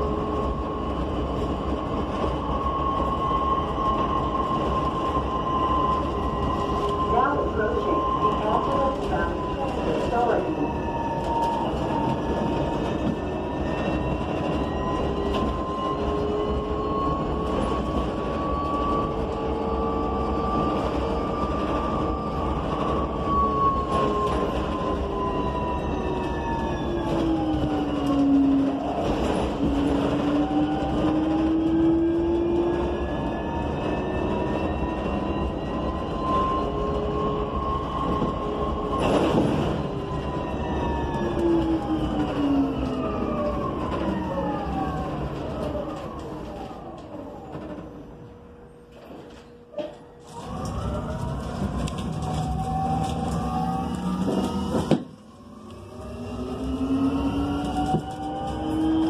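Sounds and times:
electric bus motor whining: 0.0 - 59.0
road rumble: 35.8 - 59.0.

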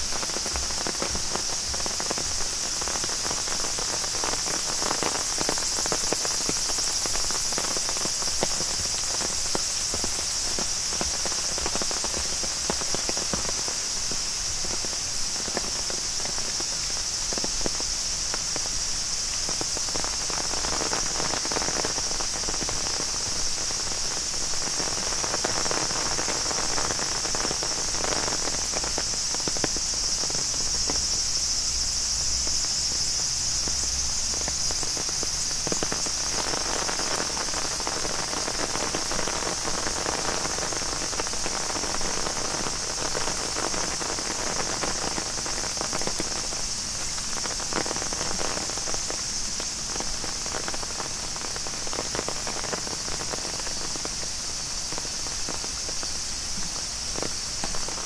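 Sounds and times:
footsteps: 0.0 - 2.4
insects chorus: 0.0 - 58.0
rain patter: 0.0 - 58.0.

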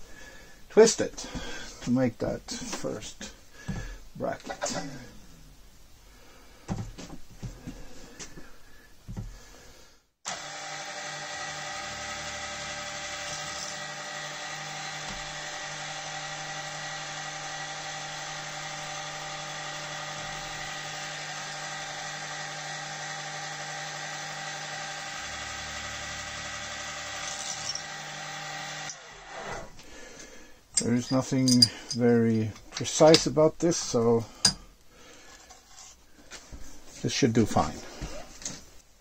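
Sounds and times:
drill press whining: 10.3 - 29.8.

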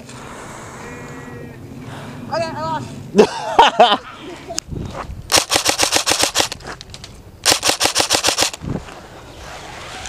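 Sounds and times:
airsoft rifle firing bursts: 5.3 - 6.6, 7.4 - 8.6.

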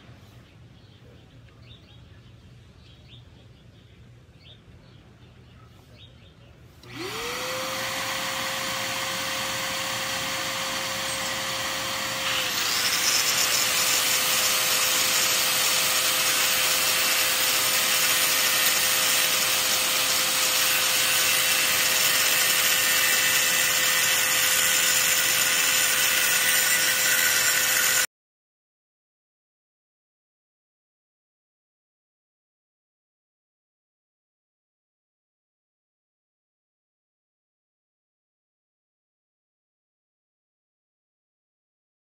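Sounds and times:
angle grinder cutting tile: 6.8 - 28.1.

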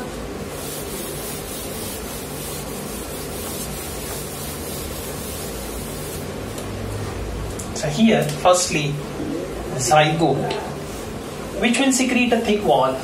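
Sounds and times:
eraser wiping whiteboard: 0.4 - 6.3.

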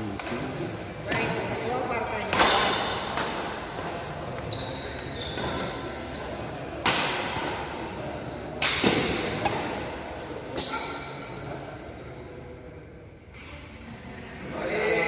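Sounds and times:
shoes squeaking on court floor: 0.3 - 1.3, 3.2 - 11.4
racket hitting shuttlecock: 2.2 - 4.4, 6.8 - 7.7, 8.5 - 9.8.

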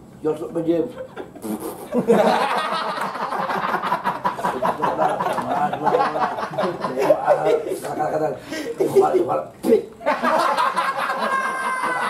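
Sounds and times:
men laughing loudly: 1.0 - 8.0, 10.0 - 12.0.

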